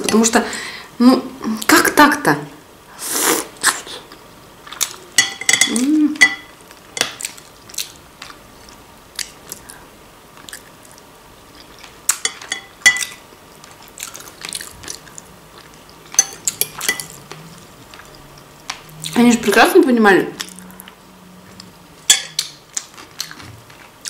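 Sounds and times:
chewing with wet mouth clicks: 13.0s - 19.2s, 22.3s - 23.9s.

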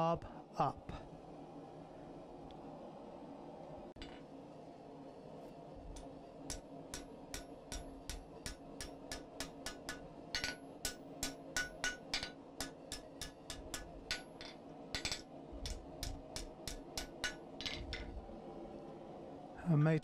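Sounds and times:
hammer striking hot metal on anvil: 6.0s - 18.1s.

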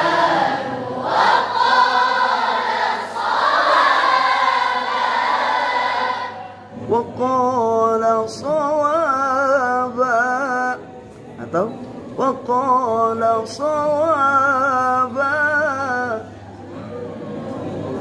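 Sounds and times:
group chanting recitation in unison: 0.0s - 10.0s.

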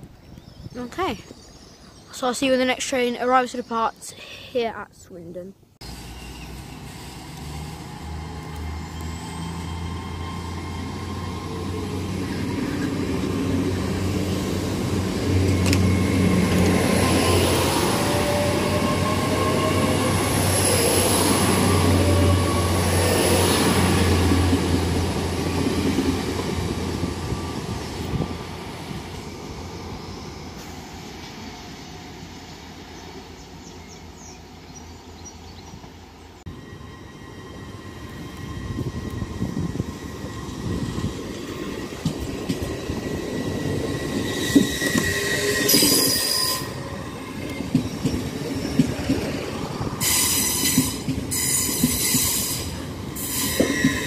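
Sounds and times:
train diesel engines humming: 0.8s - 54.0s
wheels rushing on rail: 5.8s - 54.0s.

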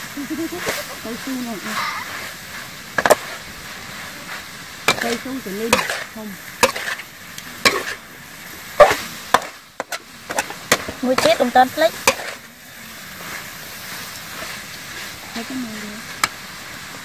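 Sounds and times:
steady sizzle: 0.0s - 17.0s
metal spatula clanking on a wok: 4.9s - 7.0s.

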